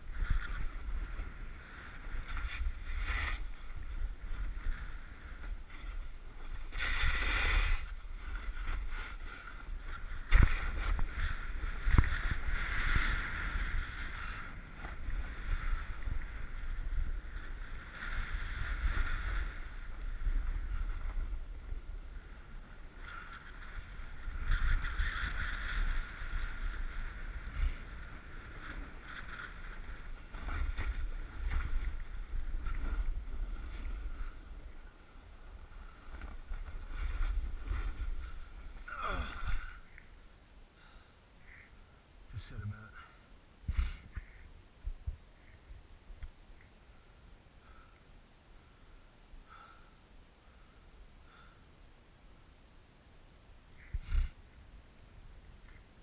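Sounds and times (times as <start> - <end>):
snowboard scraping over snow: 0.0 - 40.0, 53.8 - 54.4.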